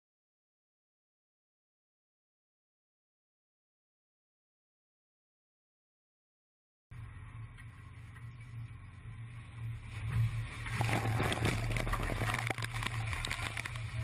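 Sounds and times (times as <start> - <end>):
boat engine drone: 6.9 - 14.0.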